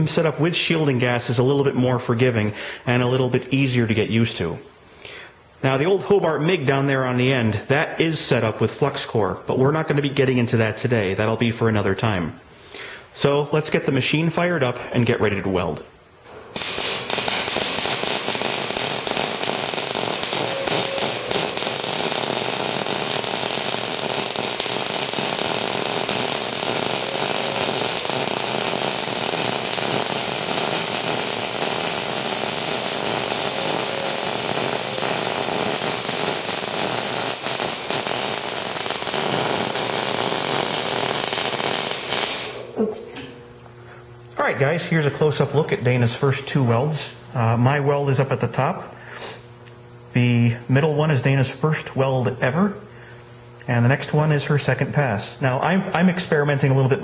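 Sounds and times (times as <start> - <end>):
welding arc crackling: 16.2 - 42.8.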